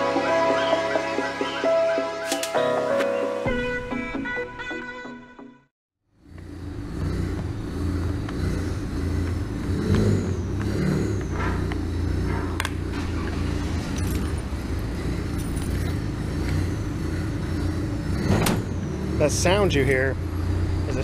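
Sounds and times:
car engine idling: 0:06.2 - 0:21.0
light metallic jingles: 0:15.2 - 0:16.6.

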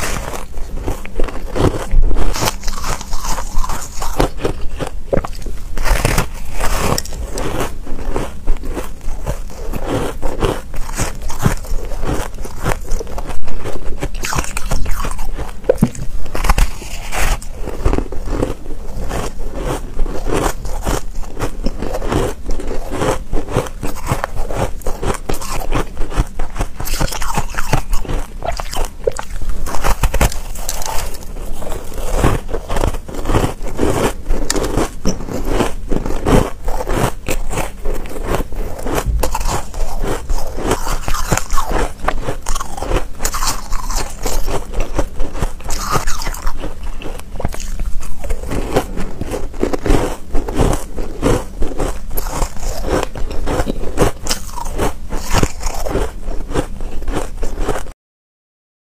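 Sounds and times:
crunching ice bar: 0:00.0 - 0:57.9.

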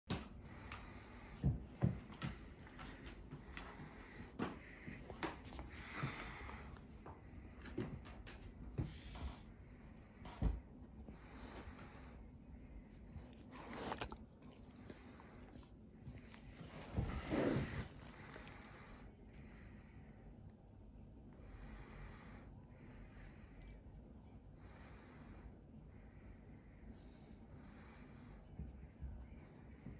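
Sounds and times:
slow breathing: 0:00.1 - 0:20.4
low room rumble: 0:00.1 - 0:29.9
dog sniffing: 0:00.5 - 0:06.8, 0:13.0 - 0:18.8.

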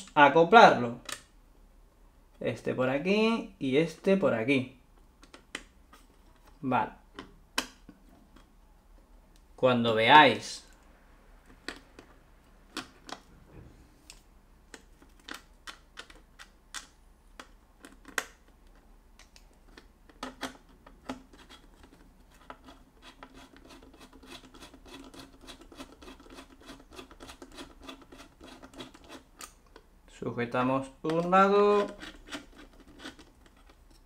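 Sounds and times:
screwdriver clicking and scratching: 0:19.2 - 0:29.8, 0:31.1 - 0:34.0.

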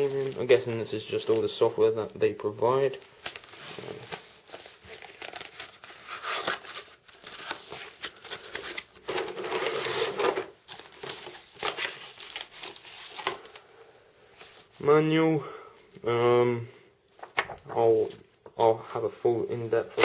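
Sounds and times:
packaging crinkling and rustling: 0:02.9 - 0:13.6.

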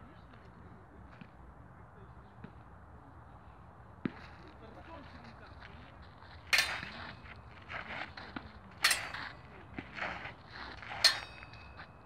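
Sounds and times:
footsteps shuffling on dirt: 0:04.0 - 0:12.0
blades clashing: 0:08.8 - 0:09.3.

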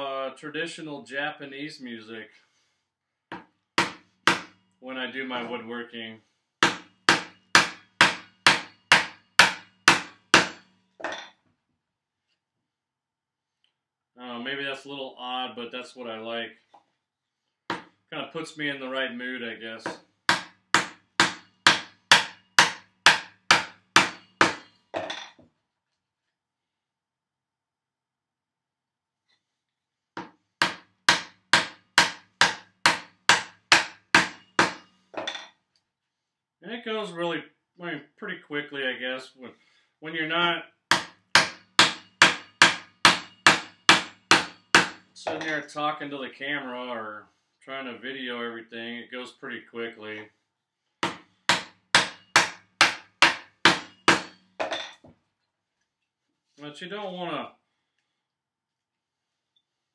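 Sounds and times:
hammer striking chisel into wood: 0:03.3 - 0:04.6, 0:06.6 - 0:10.7, 0:17.7 - 0:17.9, 0:19.9 - 0:24.7, 0:30.2 - 0:34.9, 0:40.9 - 0:45.6, 0:51.0 - 0:54.8.

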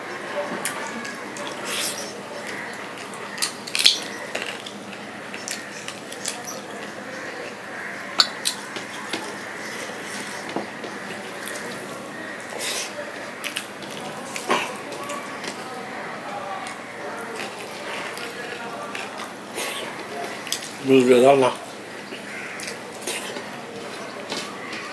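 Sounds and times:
fingers mixing food on metal plate: 0:00.1 - 0:15.8
chewing: 0:00.4 - 0:20.8, 0:21.6 - 0:24.9.

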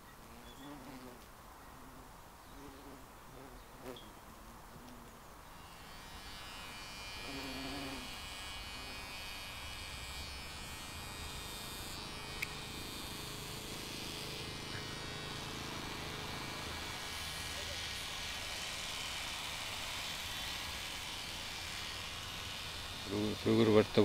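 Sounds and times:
insects buzzing: 0:00.1 - 0:24.0
sharp click: 0:12.4 - 0:12.6.

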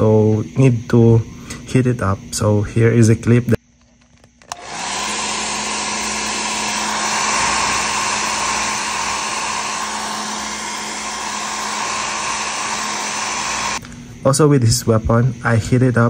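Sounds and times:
hair dryer blowing: 0:04.5 - 0:13.8.

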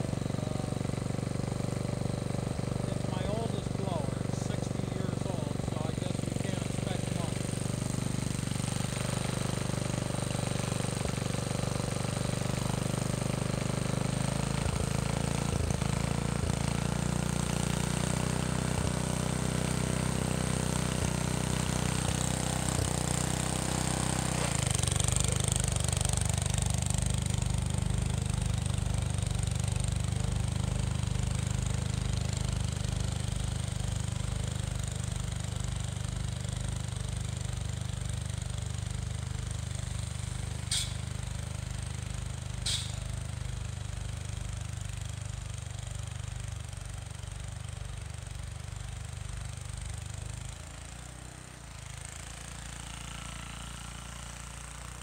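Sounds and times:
snowblower engine running: 0:00.0 - 0:55.0
snowblower throwing snow: 0:39.5 - 0:41.4, 0:42.3 - 0:43.3.

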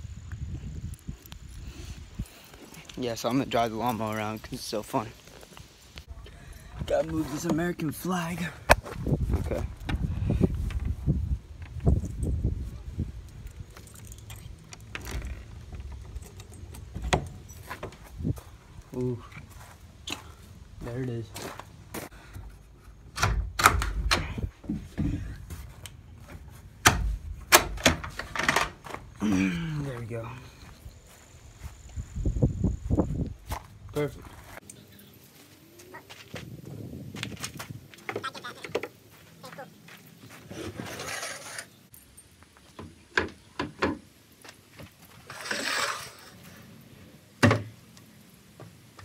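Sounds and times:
metal latch clicking and clacking: 0:23.1 - 0:24.5, 0:26.8 - 0:29.0
wood scraping: 0:40.3 - 0:41.9, 0:44.8 - 0:46.7.

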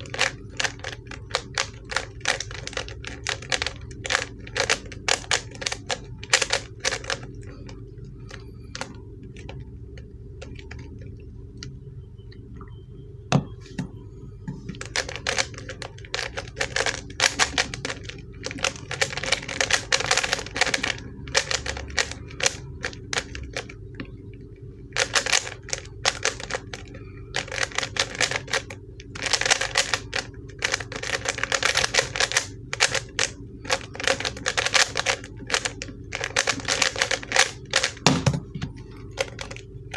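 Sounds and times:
puzzle cube plastic clicking: 0:00.0 - 0:07.3, 0:14.7 - 0:23.7, 0:25.0 - 0:26.8, 0:27.4 - 0:38.0
steady low hum: 0:00.0 - 0:39.9.

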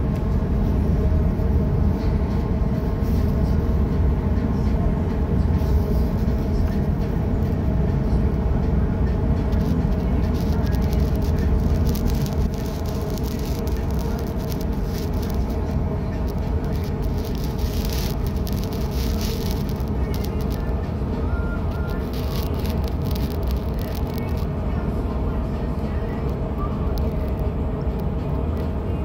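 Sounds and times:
constant hum: 0:00.0 - 0:29.0
ship engines rumbling: 0:00.0 - 0:29.0.

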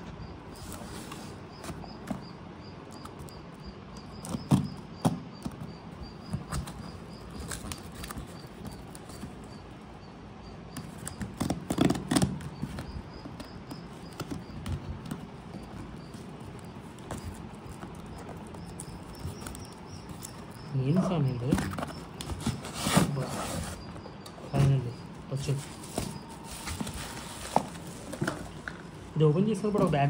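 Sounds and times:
cardboard box rustling and scraping: 0:11.0 - 0:29.0.

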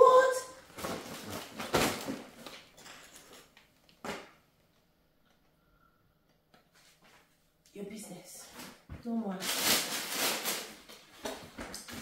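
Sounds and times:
grocery bag rustling: 0:09.1 - 0:11.3.

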